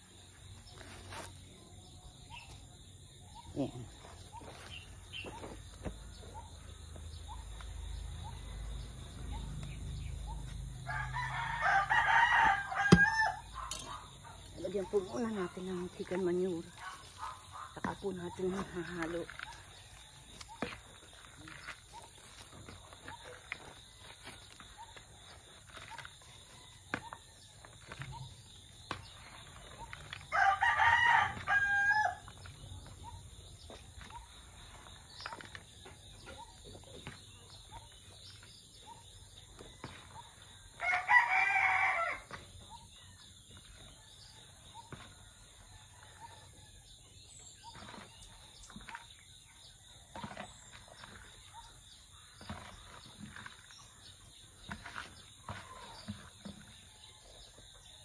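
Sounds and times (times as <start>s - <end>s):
rooster crowing: 10.8s - 13.6s, 30.3s - 32.2s, 40.8s - 42.3s.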